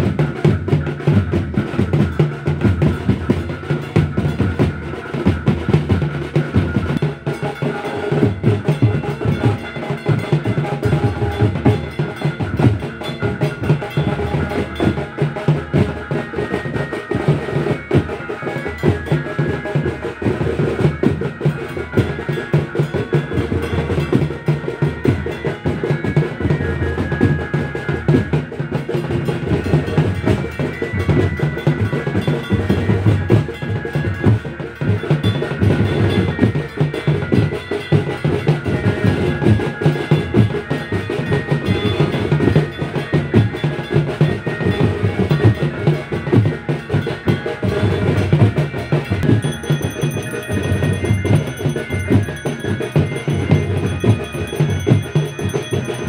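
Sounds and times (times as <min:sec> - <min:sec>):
fast ritual drumming: 0:00.0 - 0:56.0
thin ringing tone: 0:47.7 - 0:56.0.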